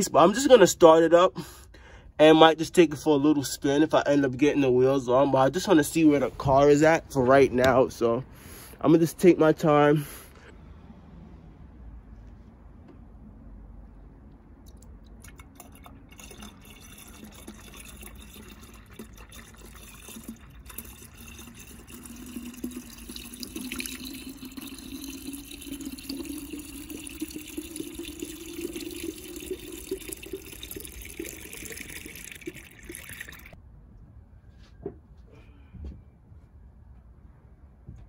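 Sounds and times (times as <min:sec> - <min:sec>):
liquid pouring into a tank: 0:14.7 - 0:33.6.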